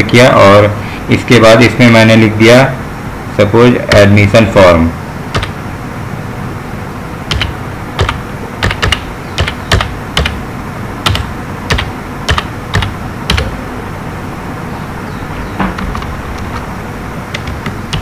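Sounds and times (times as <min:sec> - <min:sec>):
steady background noise: 0:00.0 - 0:18.0
computer keyboard keys clicking: 0:07.3 - 0:10.4, 0:11.0 - 0:13.5, 0:17.3 - 0:18.0.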